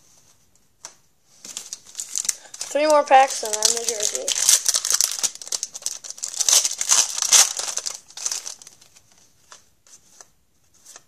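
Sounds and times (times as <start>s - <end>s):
foil wrapper crinkling and tearing: 1.5s - 9.0s.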